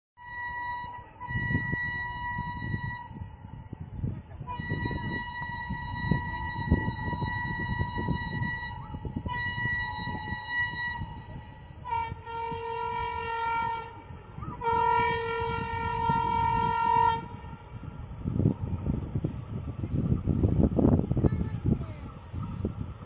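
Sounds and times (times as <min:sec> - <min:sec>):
locomotive horn blasts: 0:00.2 - 0:03.6, 0:04.2 - 0:17.8
low rumbling noise: 0:00.7 - 0:23.0.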